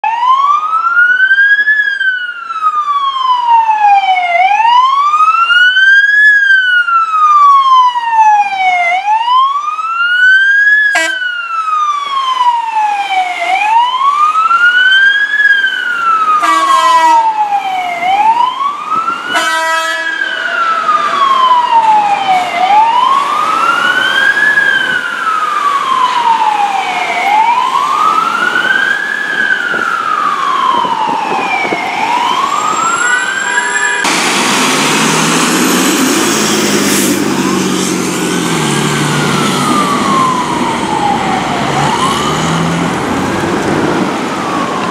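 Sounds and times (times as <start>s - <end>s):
fire engine siren wailing: 0.0s - 44.9s
short horn blasts: 11.0s - 11.2s, 16.4s - 17.2s, 19.4s - 20.2s.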